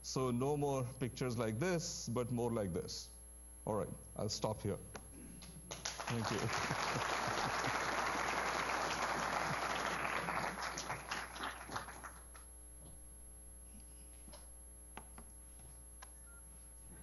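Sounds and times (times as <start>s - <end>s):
audience applauding: 5.7s - 12.4s.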